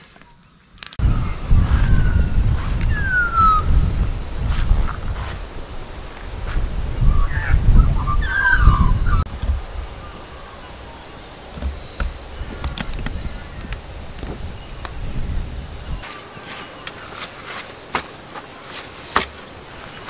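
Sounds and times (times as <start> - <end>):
wind rumble on microphone: 1.0 - 16.1
magpie warbling calls: 1.1 - 3.8, 7.1 - 9.2.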